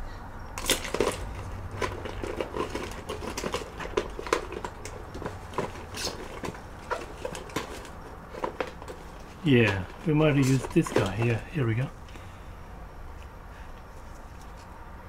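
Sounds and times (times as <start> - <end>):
hard objects rummaged by hand: 0.6 - 12.3.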